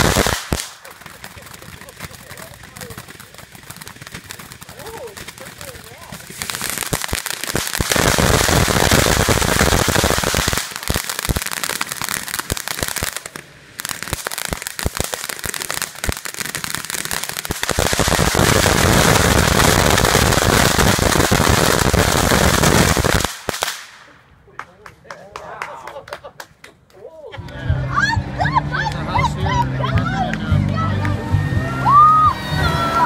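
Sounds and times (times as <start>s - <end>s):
firework fountain hissing crackle: 0.0s - 24.3s.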